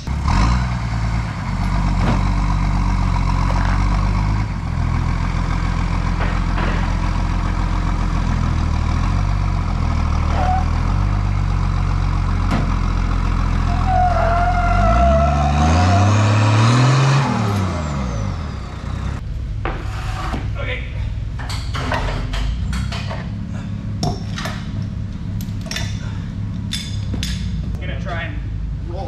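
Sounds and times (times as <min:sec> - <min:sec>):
truck engine running under load: 0:00.0 - 0:19.7
wavering squeal: 0:13.7 - 0:16.4.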